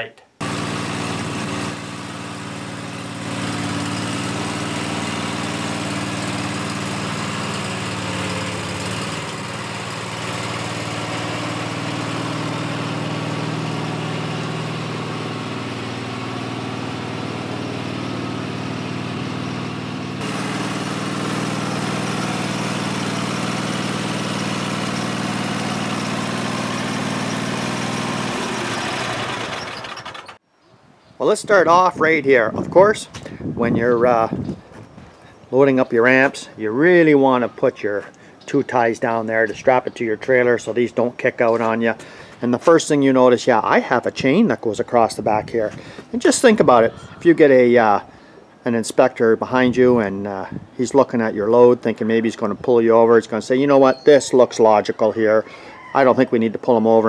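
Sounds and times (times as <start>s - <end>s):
lawn tractor engine running: 0.4s - 30.4s.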